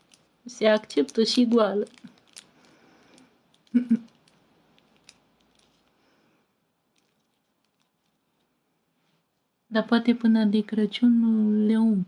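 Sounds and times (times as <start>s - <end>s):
person laughing: 3.7s - 4.1s.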